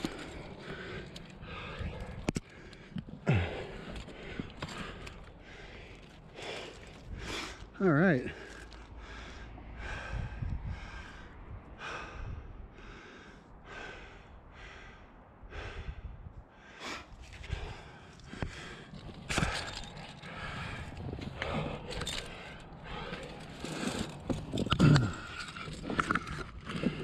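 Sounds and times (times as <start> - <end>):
heavy breathing: 0.0 - 27.0
hands and shoes scraping rock: 18.3 - 27.0.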